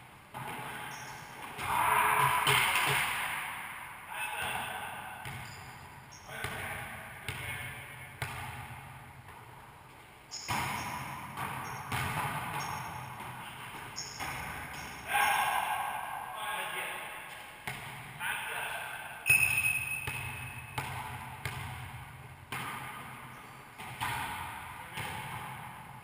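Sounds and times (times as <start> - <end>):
volleyball smacks with echo: 1.4 - 3.7, 4.4 - 5.7, 6.3 - 9.5, 10.3 - 15.9, 17.3 - 18.2, 19.2 - 26.0.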